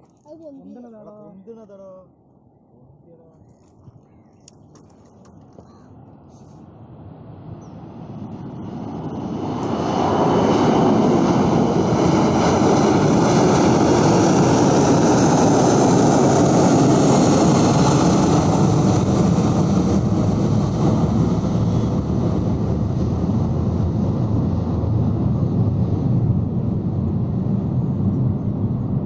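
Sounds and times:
jet engines roaring at takeoff: 0:06.6 - 0:29.0.

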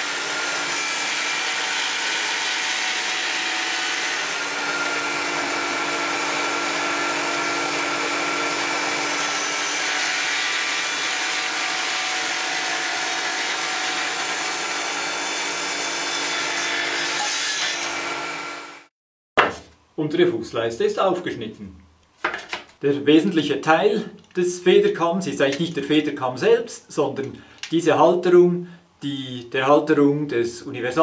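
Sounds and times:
table saw cutting wood: 0:00.0 - 0:18.9.

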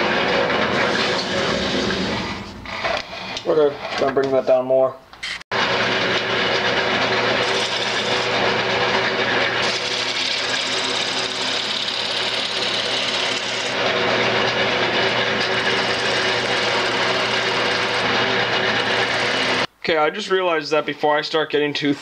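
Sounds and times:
lathe motor hum: 0:05.5 - 0:19.7
gouge scraping wood: 0:07.3 - 0:08.6, 0:09.6 - 0:19.7.

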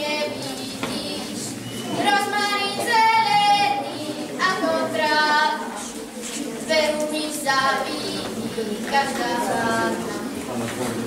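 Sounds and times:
girl singing unaccompanied: 0:00.0 - 0:10.2.

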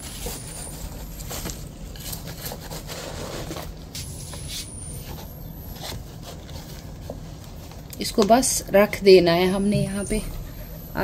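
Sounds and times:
steady low rumble: 0:03.7 - 0:11.0.

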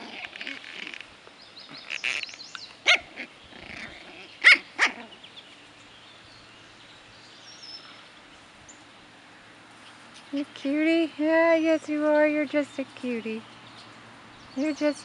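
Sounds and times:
puppies yipping: 0:01.7 - 0:05.2.

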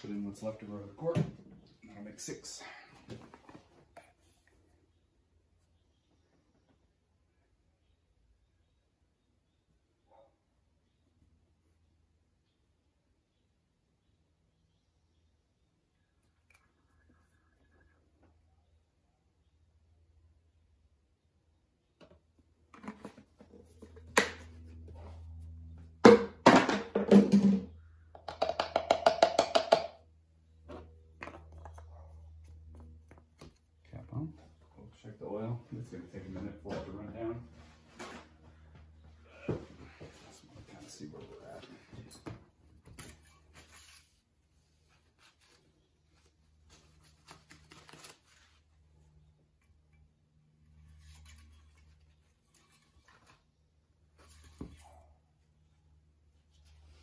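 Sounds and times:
hollow plastic knocks: 0:28.2 - 0:30.0.

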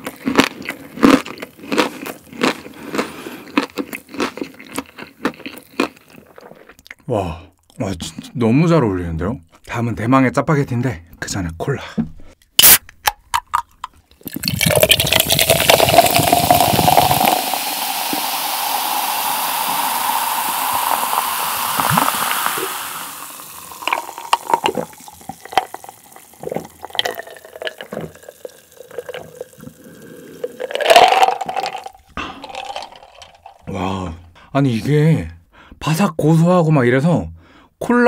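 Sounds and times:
can cracked open: 0:12.6 - 0:29.4
cola pouring and fizzing: 0:13.4 - 0:33.7
person gulping: 0:13.4 - 0:34.3.

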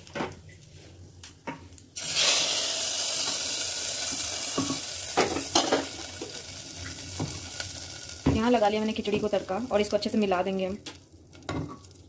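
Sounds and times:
spices sizzling in hot oil: 0:02.0 - 0:12.0.

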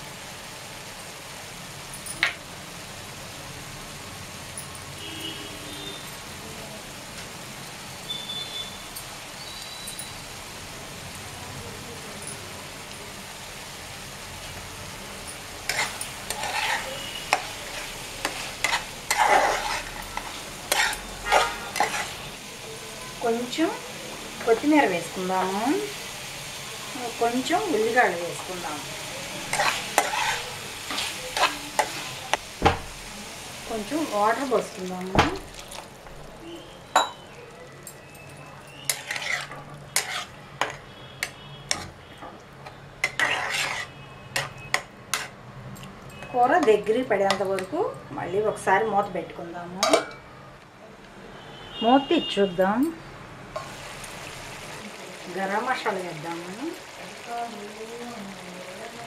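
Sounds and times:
curry sizzling: 0:00.0 - 0:47.7, 0:52.9 - 0:59.0
spatula scraping pan: 0:15.6 - 0:22.4, 0:29.4 - 0:32.9, 0:38.7 - 0:42.0, 0:42.6 - 0:45.4.

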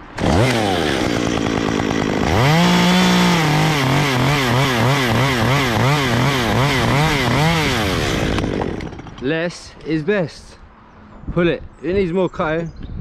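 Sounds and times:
chainsaw cutting through branch: 0:00.0 - 0:09.4.

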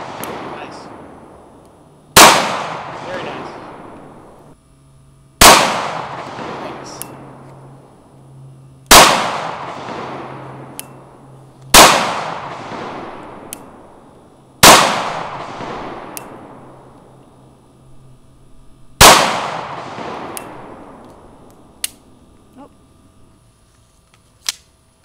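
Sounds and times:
pistol shots with echo: 0:00.0 - 0:01.2, 0:02.2 - 0:04.3, 0:05.4 - 0:07.3, 0:08.9 - 0:10.8, 0:11.7 - 0:13.8, 0:14.6 - 0:16.6, 0:19.0 - 0:21.0.

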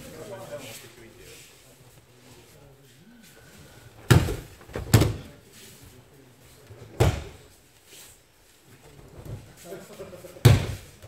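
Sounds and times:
bodies thudding on foam mats: 0:04.0 - 0:05.3.

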